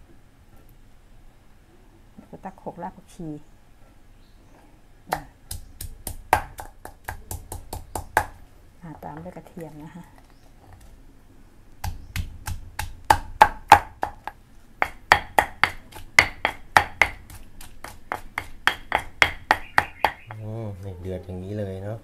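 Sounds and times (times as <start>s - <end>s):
pestle pounding in mortar: 5.4s - 8.4s, 11.8s - 20.4s.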